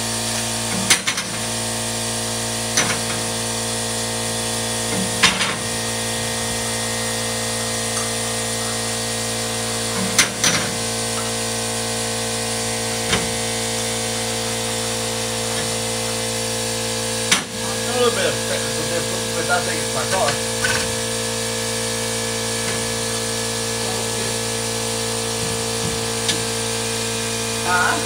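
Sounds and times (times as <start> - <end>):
jack pump hum: 0.0 - 28.0.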